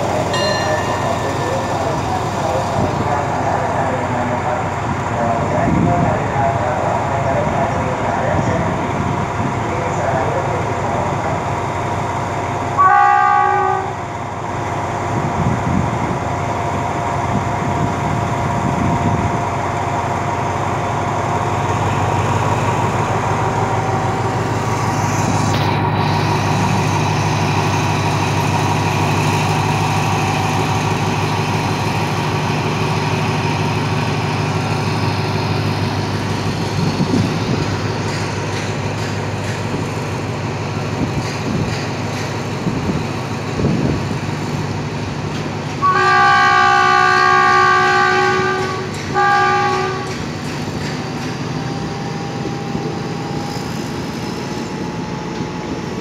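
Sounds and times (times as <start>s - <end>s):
locomotive engine working: 0.0s - 56.0s
train coaches rolling past: 0.0s - 56.0s
locomotive horn: 12.8s - 14.0s, 45.8s - 50.2s.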